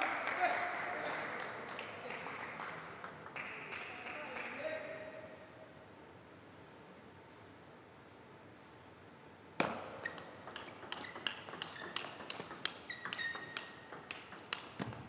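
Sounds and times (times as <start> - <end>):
table tennis ball hits: 3.0 - 3.8, 9.6 - 15.0.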